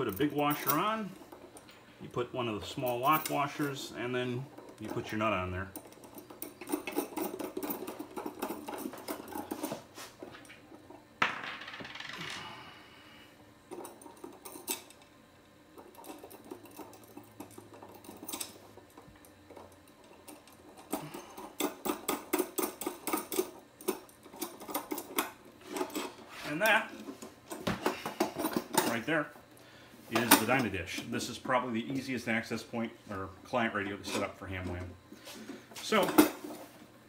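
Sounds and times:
small metal hardware clinking: 0:05.8 - 0:09.7, 0:15.8 - 0:26.1.

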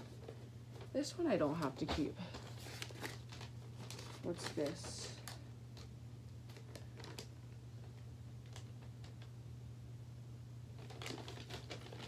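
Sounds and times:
steady low hum: 0:00.0 - 0:12.0
paper rustling: 0:01.7 - 0:05.4, 0:10.8 - 0:12.0.

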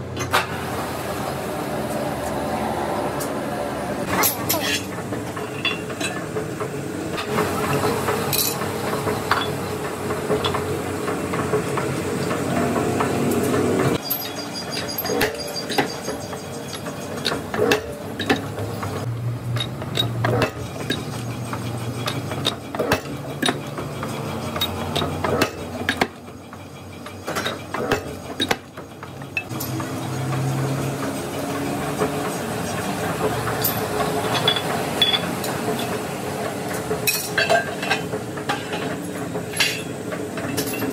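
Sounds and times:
steel clinking and clanking: 0:04.0 - 0:36.0, 0:36.7 - 0:40.9
spanner knocking on nuts: 0:14.0 - 0:31.2.

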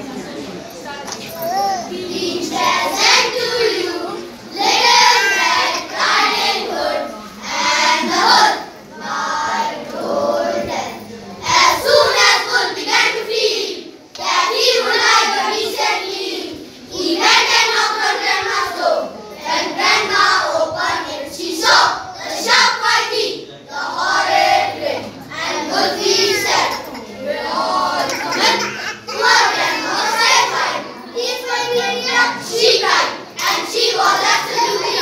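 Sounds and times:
boys choir singing: 0:01.9 - 0:11.0, 0:11.6 - 0:13.8, 0:14.4 - 0:35.0.

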